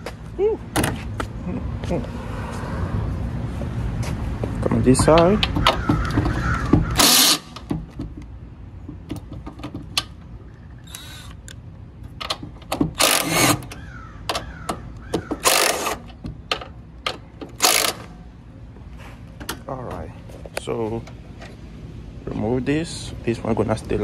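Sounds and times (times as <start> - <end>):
impact driver bursts: 6.9 - 7.6, 13.0 - 13.7, 15.4 - 16.1.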